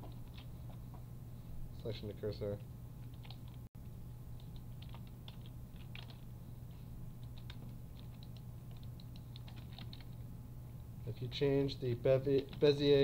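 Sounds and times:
steady low hum: 0.0 - 13.0
keyboard and mouse clicks: 7.2 - 10.2.

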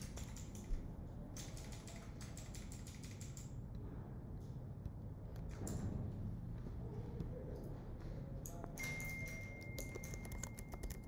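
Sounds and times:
computer key clicks: 1.4 - 3.5, 9.3 - 11.0.

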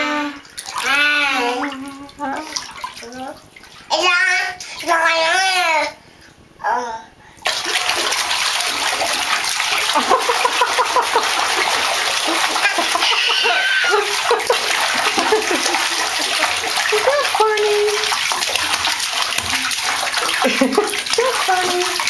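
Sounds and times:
toddler vocal sounds: 0.0 - 6.0, 6.6 - 7.2, 12.6 - 14.2
bathwater splashing: 0.0 - 6.3, 7.4 - 22.0.

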